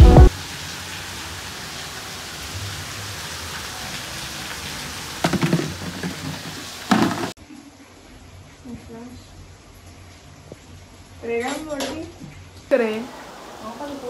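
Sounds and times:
steady rain falling: 0:00.0 - 0:14.0.

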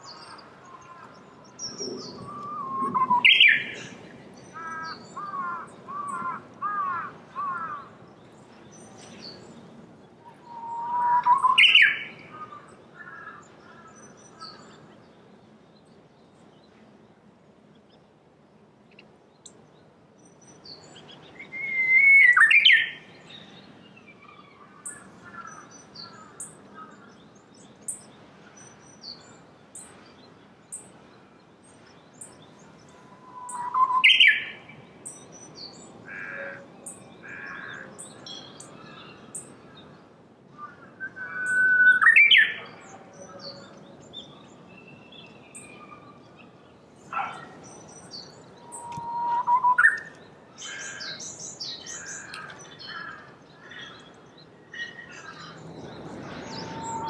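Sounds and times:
warbler singing whistled song: 0:00.0 - 0:06.3, 0:07.4 - 0:18.1, 0:18.9 - 0:57.0
high chirps of small birds: 0:00.0 - 0:18.1, 0:18.9 - 0:57.0.

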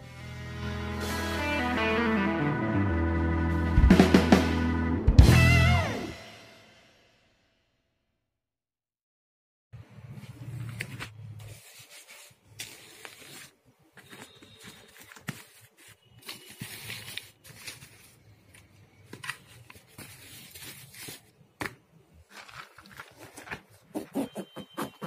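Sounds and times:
fabric rustling and scraping: 0:10.0 - 0:18.6, 0:19.2 - 0:21.4.

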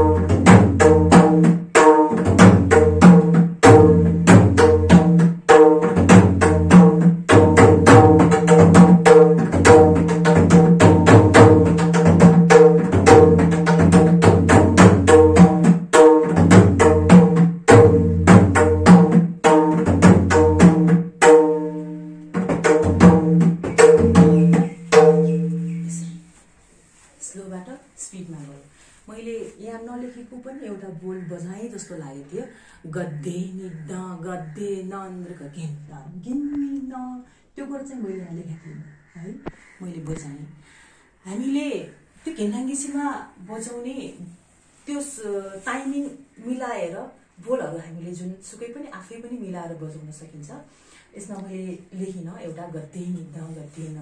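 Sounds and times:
hand drum played rapidly: 0:00.0 - 0:26.0.

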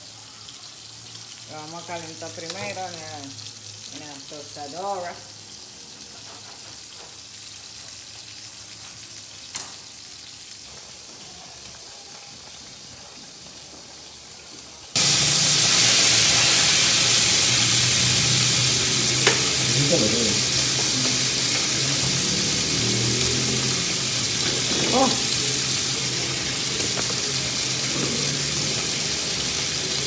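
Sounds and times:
sausages sizzling in a frying pan: 0:00.0 - 0:30.0
metal tongs clinking on pan: 0:19.2 - 0:19.7.

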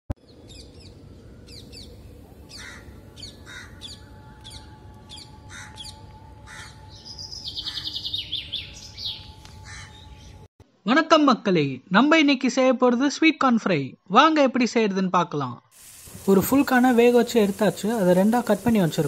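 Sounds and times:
birds chirping: 0:00.2 - 0:10.5
hoarse caw-like calls: 0:02.5 - 0:03.9, 0:05.4 - 0:06.8, 0:09.6 - 0:10.0.

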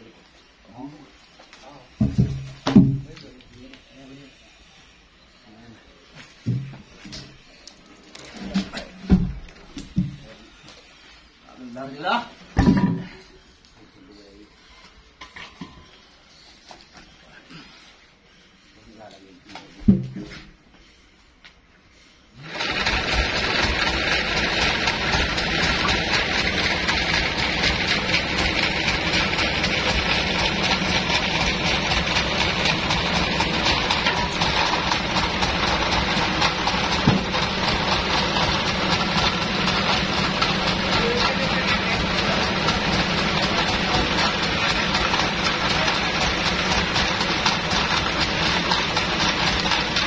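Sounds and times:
sawmill diesel engine droning: 0:22.4 - 0:50.0.

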